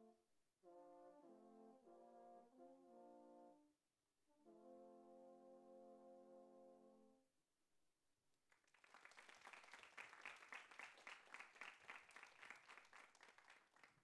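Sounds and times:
audience applauding: 8.5s - 14.0s.

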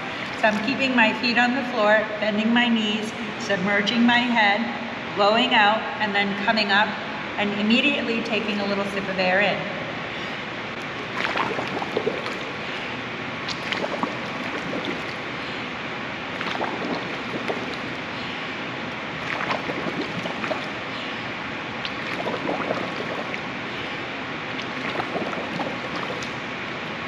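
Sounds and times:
water washing: 0.0s - 1.3s, 10.8s - 27.0s
pool water splashing: 0.0s - 2.1s, 10.7s - 27.0s.

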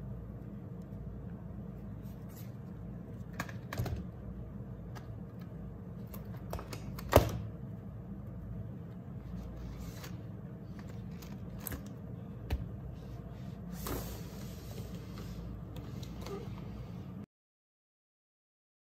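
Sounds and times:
paper pages rustling: 9.2s - 11.9s.

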